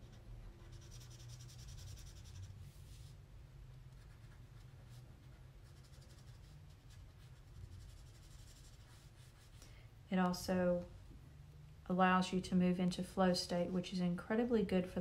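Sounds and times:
marker scratching on paper: 0.0s - 3.2s, 3.9s - 9.6s.

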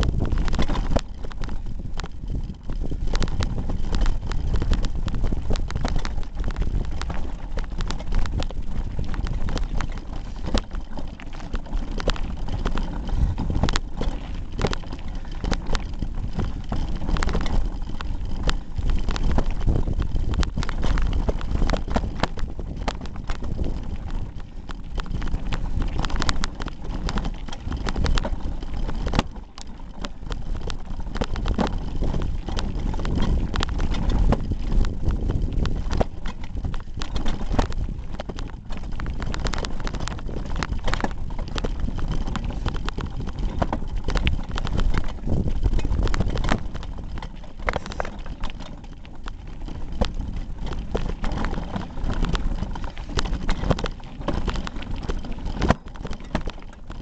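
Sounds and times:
bike knocks and rattles: 0.0s - 57.0s
tyres rumbling on gravel: 0.0s - 57.0s.

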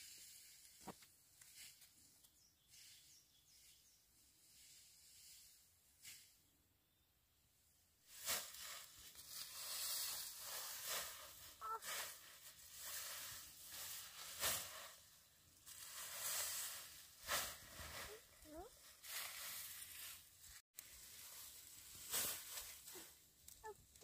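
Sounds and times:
grass stalks swishing and tearing: 20.8s - 23.2s.

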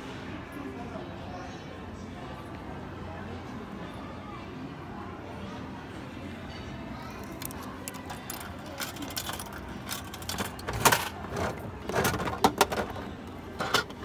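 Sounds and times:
coins clinking into slot: 7.9s - 13.0s.

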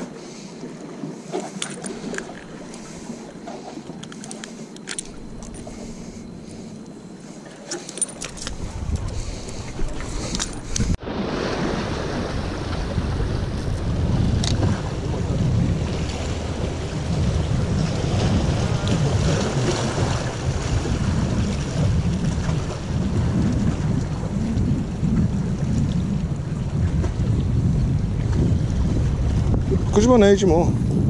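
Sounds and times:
wind buffeting microphone: 8.0s - 31.0s.

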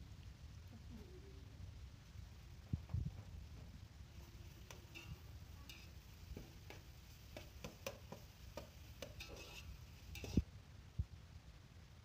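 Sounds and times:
spatula scraping metal pot: 4.2s - 10.4s.

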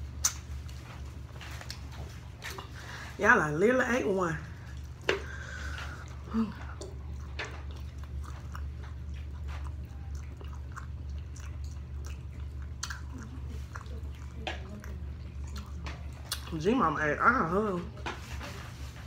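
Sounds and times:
person chewing food: 0.0s - 3.2s, 4.5s - 16.6s
mouth clicks and smacks: 0.2s - 0.5s, 10.3s - 16.5s.

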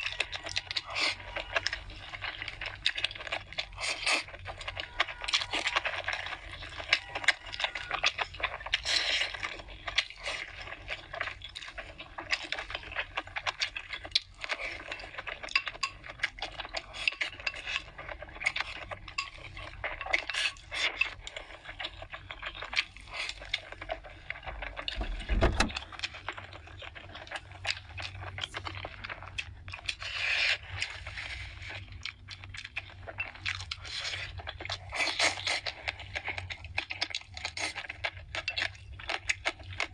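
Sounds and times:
chewing: 0.0s - 39.9s
low thump: 25.0s - 25.8s
noodles slurped: 25.8s - 39.9s.

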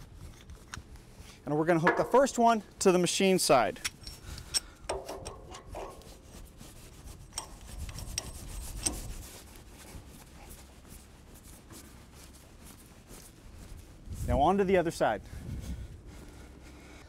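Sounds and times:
metal rubbing and scraping: 1.7s - 2.5s, 3.8s - 10.3s
sharp metal clicks: 3.8s - 6.1s.

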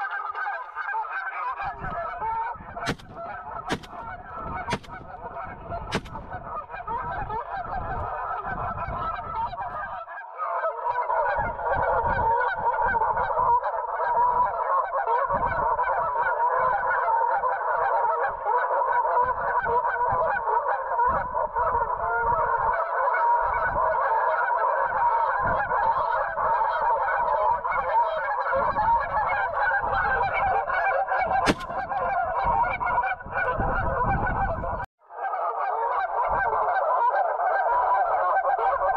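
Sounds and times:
geese honking: 0.0s - 38.9s
sharp click: 2.9s - 5.2s, 5.9s - 6.3s, 31.5s - 31.8s.

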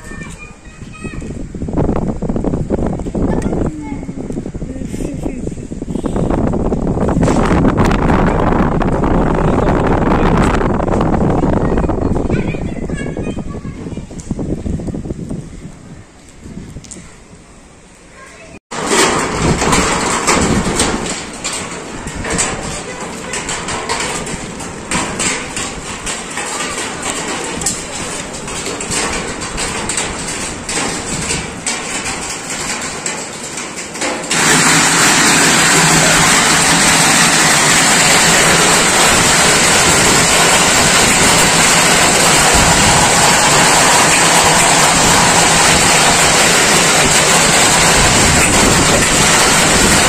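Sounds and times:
hailstones pelting down: 0.1s - 14.6s, 18.7s - 50.0s
roar of heavy hail and rain: 5.6s - 12.7s, 18.7s - 50.0s.

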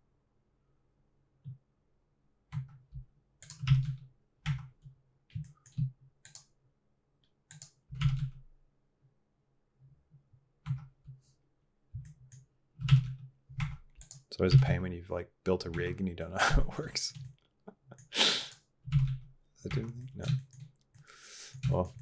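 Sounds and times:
computer keyboard clicking: 3.4s - 6.5s, 7.5s - 8.4s, 12.0s - 14.7s.

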